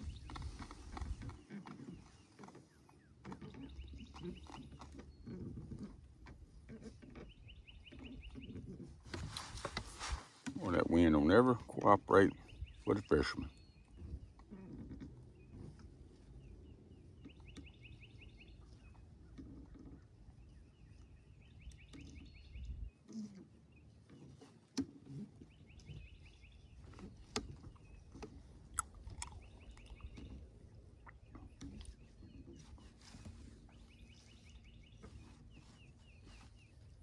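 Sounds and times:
wind rumbling on microphone: 0:00.0 - 0:02.7, 0:12.3 - 0:23.0, 0:25.4 - 0:37.0.

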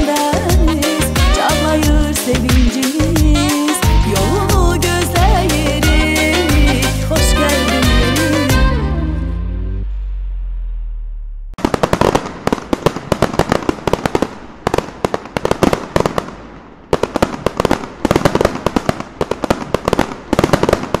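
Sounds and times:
fireworks crackling and banging: 0:11.6 - 0:21.0.

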